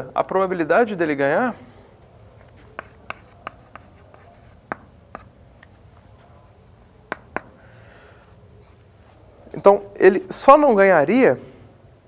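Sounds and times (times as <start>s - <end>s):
chalk tapping on chalkboard: 2.6s - 5.8s, 6.5s - 7.6s
chalk scratching: 2.6s - 7.6s.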